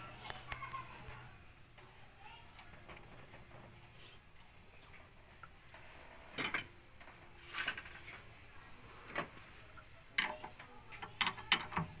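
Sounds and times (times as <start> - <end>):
wrench clinking and scraping on metal: 6.3 - 6.8, 10.2 - 11.9.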